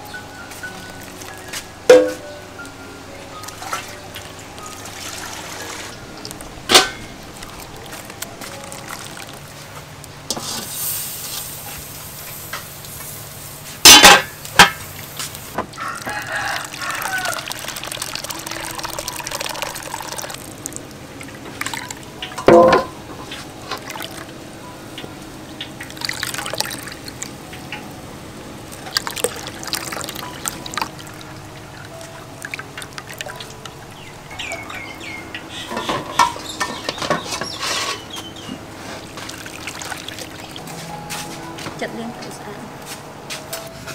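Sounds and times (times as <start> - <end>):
liquid trickling into a bowl: 3.5 - 9.8, 15.8 - 22.7, 23.6 - 24.3, 25.7 - 27.4, 28.7 - 35.0, 38.8 - 40.7
water pouring: 3.5 - 11.6, 14.8 - 22.8, 23.6 - 24.3, 25.8 - 27.3, 28.7 - 34.6, 38.8 - 40.7
chickens calling: 15.7 - 22.2, 29.4 - 40.6
coconut squeezed through strainer: 16.0 - 20.8.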